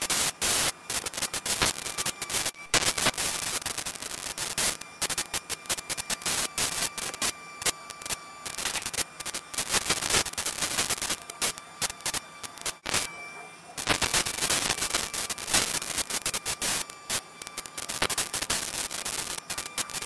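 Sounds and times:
crackling static and pops: 0:00.0 - 0:13.2, 0:13.8 - 0:20.0
faint steady whine: 0:00.0 - 0:20.0.

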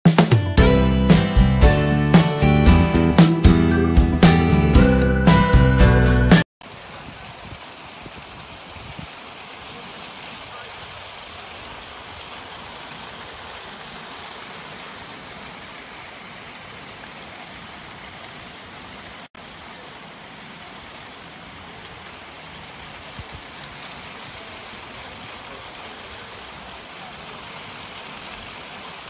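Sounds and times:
outdoor hiss of wet car park: 0:06.6 - 0:29.0.

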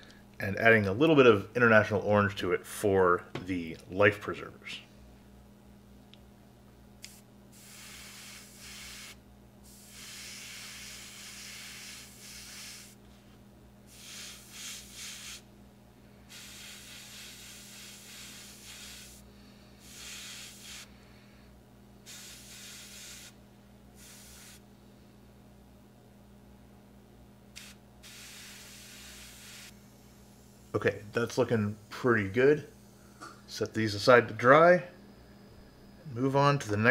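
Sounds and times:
airbrush spraying hiss: 0:07.0 - 0:13.0, 0:13.9 - 0:15.5, 0:16.3 - 0:20.9, 0:22.0 - 0:23.4, 0:24.0 - 0:24.6, 0:27.6 - 0:30.8.

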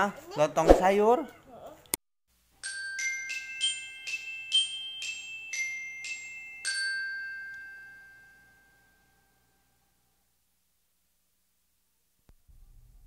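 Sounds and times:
mallet percussion jingle: 0:02.6 - 0:09.3.

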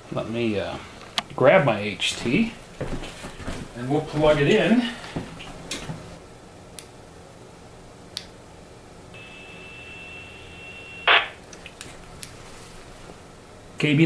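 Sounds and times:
steady high beep: 0:09.2 - 0:11.2.

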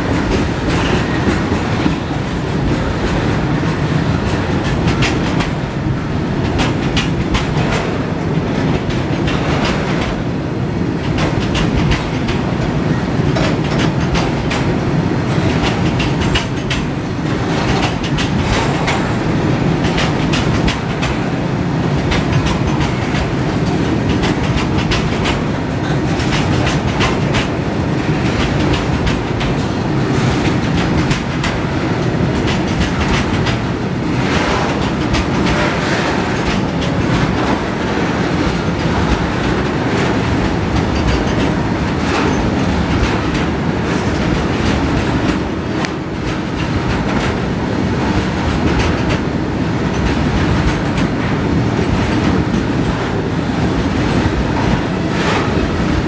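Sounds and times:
freight train rumbling past: 0:00.0 - 0:56.0
wheels clattering over rail joints: 0:13.3 - 0:21.2, 0:22.0 - 0:47.4.

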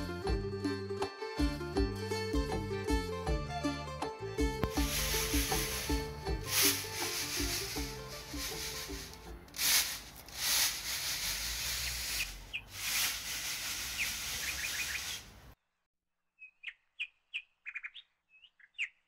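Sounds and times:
small bird chirping: 0:12.2 - 0:12.7, 0:13.9 - 0:15.5, 0:16.4 - 0:19.0.

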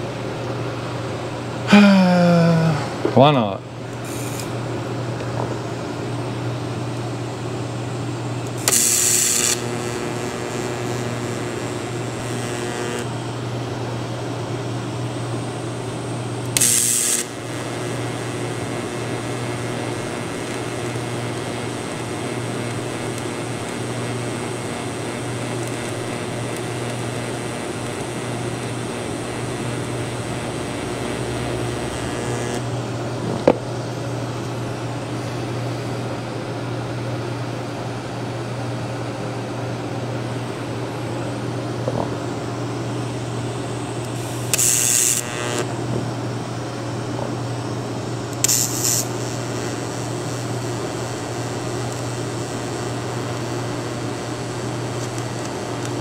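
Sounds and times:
steady hum: 0:00.0 - 0:56.0
welding arc hissing: 0:03.9 - 0:04.6, 0:08.4 - 0:13.3, 0:16.4 - 0:32.7, 0:43.0 - 0:46.3, 0:47.2 - 0:56.0.

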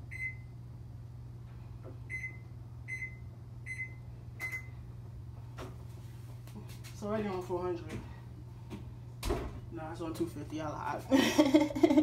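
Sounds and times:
oven control panel beeping: 0:00.0 - 0:00.6, 0:02.0 - 0:04.8
steady low hum: 0:00.0 - 0:12.0.

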